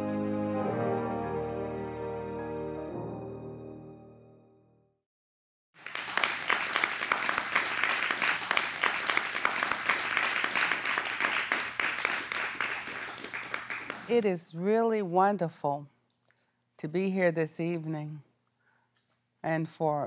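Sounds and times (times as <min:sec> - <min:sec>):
orchestral music: 0:00.0 - 0:04.6
audience applauding: 0:05.8 - 0:14.2.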